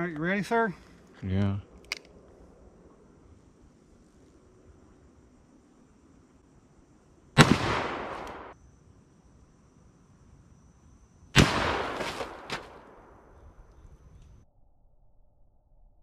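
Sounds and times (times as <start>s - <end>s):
faint insect buzz: 0.6s - 14.4s
revolver gunshots: 7.4s - 8.6s, 11.4s - 13.3s.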